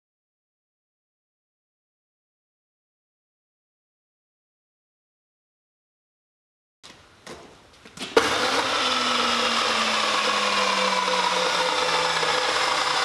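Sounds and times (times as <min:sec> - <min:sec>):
electric motor whirring: 0:08.2 - 0:13.0.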